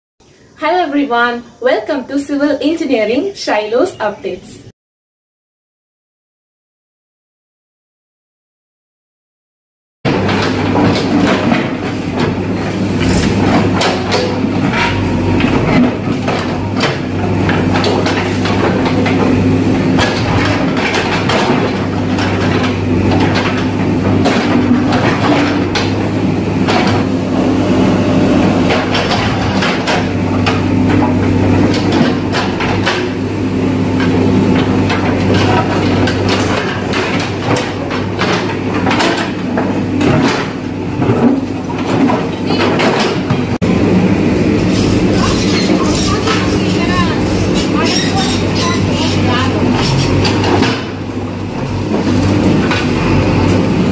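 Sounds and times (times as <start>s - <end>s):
excavator diesel engine droning: 10.1s - 53.9s
bucket scraping through concrete: 12.8s - 13.7s.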